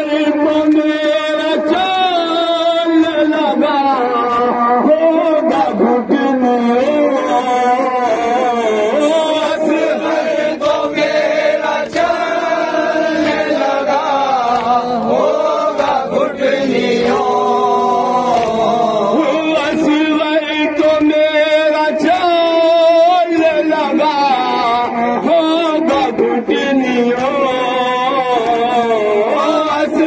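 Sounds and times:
man chanting into microphone: 0.0s - 11.7s, 12.3s - 30.0s
hands slapping chests: 10.0s - 16.1s, 18.2s - 19.8s.

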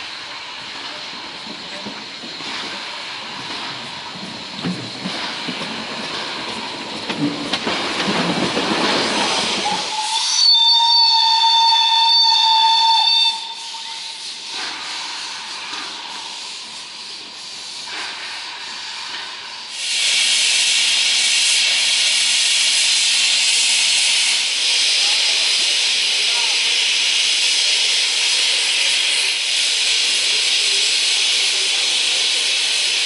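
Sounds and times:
steam hissing: 0.0s - 33.0s
steam whistle blast: 9.6s - 14.3s.

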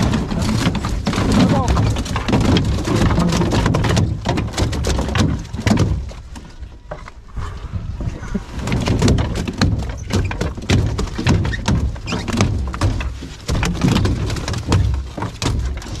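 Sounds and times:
fish thrashing on boat deck: 0.0s - 16.0s
waterproof clothing rustling: 0.0s - 16.0s.

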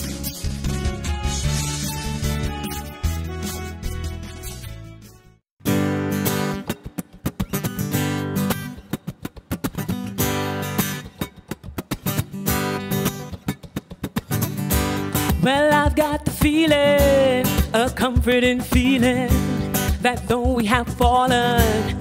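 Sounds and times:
strummed acoustic guitar: 0.0s - 22.0s
person singing: 15.3s - 22.0s.

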